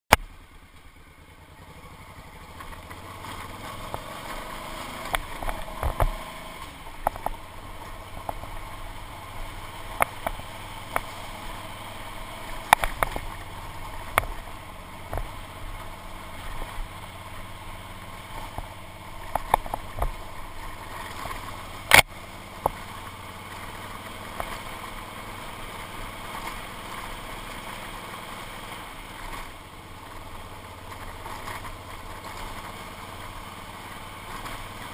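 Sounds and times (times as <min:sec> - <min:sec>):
motorcycle engine running: 0:00.1 - 0:34.9
motorcycle knocks and rattles: 0:01.6 - 0:08.8, 0:09.5 - 0:24.9, 0:29.2 - 0:33.4.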